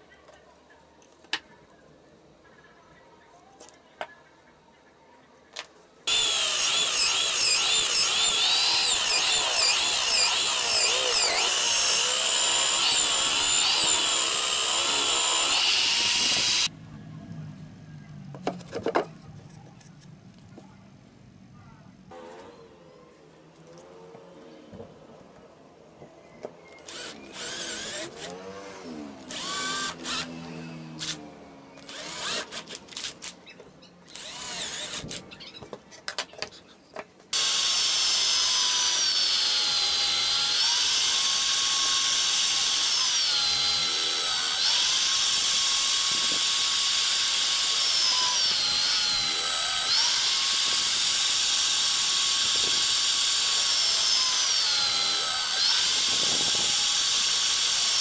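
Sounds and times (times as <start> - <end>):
cordless drill drilling into wood: 6.1 - 16.7, 26.8 - 28.4, 29.2 - 30.3, 31.8 - 33.2, 34.1 - 35.2, 37.4 - 58.0
drill press boring into plywood: 6.1 - 16.7, 29.2 - 30.3, 37.4 - 58.0.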